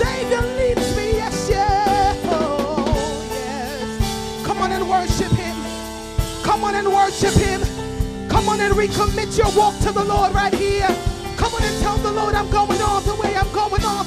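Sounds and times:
drum kit: 0.0s - 14.0s.

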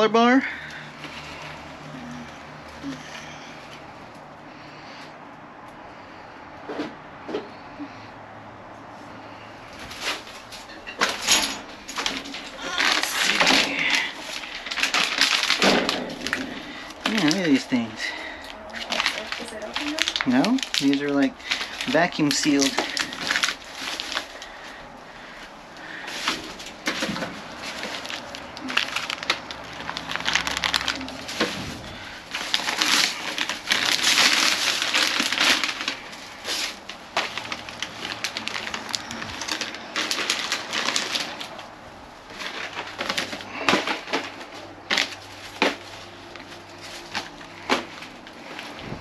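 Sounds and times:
plastic packaging rustling: 9.2s - 49.0s.

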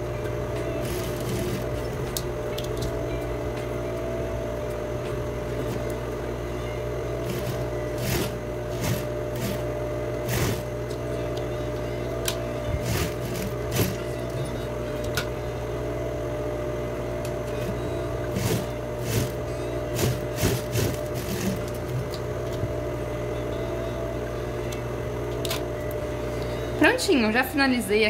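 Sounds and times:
sewing machine running: 0.7s - 2.1s, 5.4s - 5.9s, 7.2s - 10.7s, 12.7s - 14.4s, 17.6s - 22.2s.

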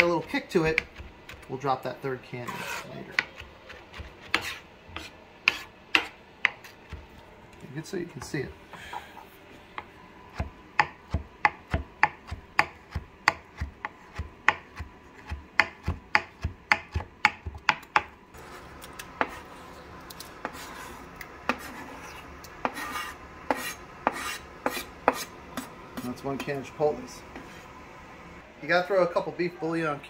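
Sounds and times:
scraping food off a cutting board: 2.4s - 5.7s, 18.4s - 26.1s
knife chopping on plastic board: 3.1s - 7.0s, 9.8s - 18.1s.

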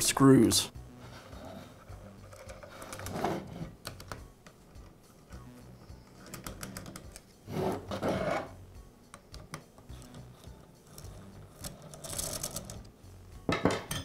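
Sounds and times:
hex key clicking and scraping: 5.9s - 7.3s, 9.9s - 12.9s.

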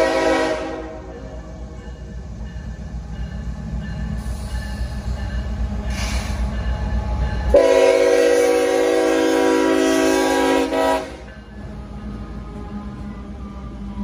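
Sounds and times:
locomotive air horn: 0.0s - 1.2s, 7.5s - 11.3s
diesel locomotive rumble: 0.0s - 14.0s.

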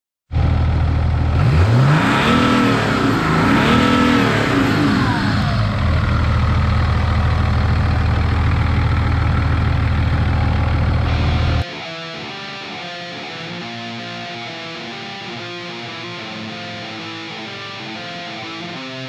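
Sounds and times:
diesel engine idling and revving: 0.3s - 11.6s.

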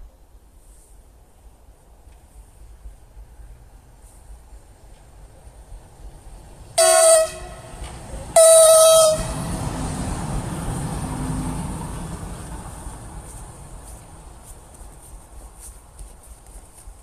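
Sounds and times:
train wheels rumbling on rails: 4.8s - 17.0s
locomotive horn blasts: 6.8s - 9.8s.

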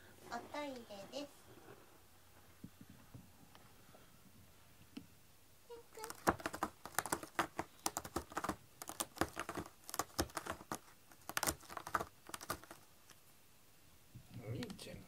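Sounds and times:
cat scratching cardboard: 5.7s - 13.2s.

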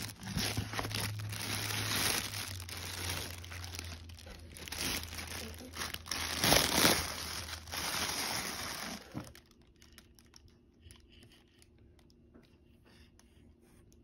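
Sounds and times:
plastic wrapping crinkling: 0.0s - 11.1s.

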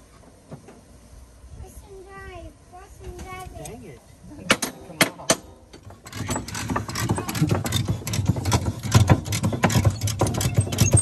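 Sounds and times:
metallic clicks and knocks: 4.5s - 11.0s.

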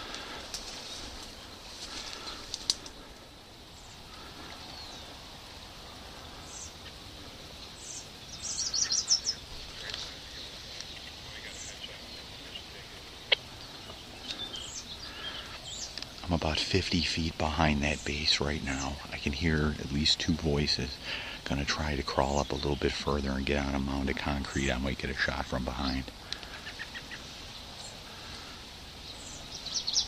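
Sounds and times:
low steady hiss: 0.0s - 30.0s
songbirds chirping: 0.0s - 30.0s
sharp clicks: 2.5s - 3.0s.

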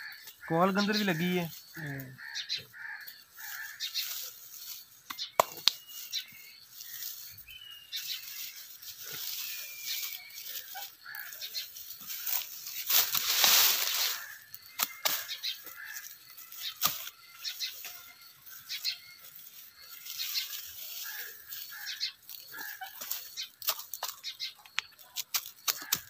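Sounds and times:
birds chirping: 0.0s - 26.0s
dry stalks rustling and crackling: 0.0s - 26.0s
stalks snapping: 5.1s - 5.9s, 14.7s - 15.4s.

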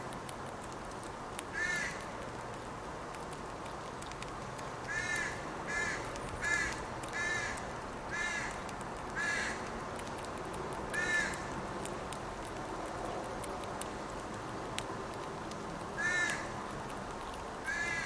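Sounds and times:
crow cawing: 1.6s - 2.0s, 4.9s - 8.5s, 9.2s - 9.6s, 10.9s - 11.4s, 16.0s - 16.5s, 17.7s - 18.0s.

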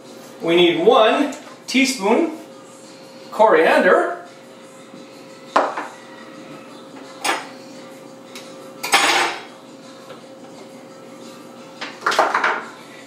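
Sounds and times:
metal spoons clinking on dishes: 8.8s - 9.5s.

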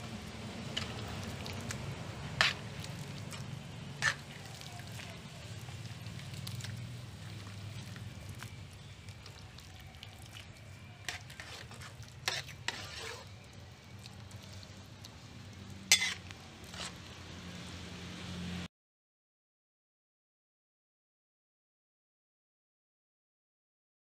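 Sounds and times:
spoon scraping a bowl: 0.8s - 1.8s, 2.4s - 5.2s, 5.8s - 14.7s, 15.8s - 17.1s.

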